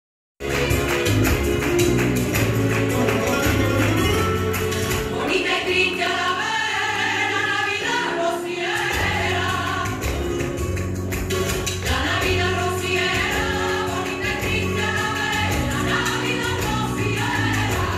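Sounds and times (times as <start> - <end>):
rhythmic hand clapping: 0.4 - 5.6, 8.7 - 17.9
flamenco music: 0.4 - 17.9.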